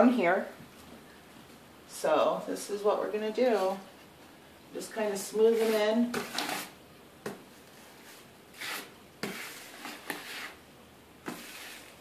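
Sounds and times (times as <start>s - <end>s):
drywall knife scraping: 5.5s - 6.8s, 7.8s - 10.6s, 11.2s - 12.0s.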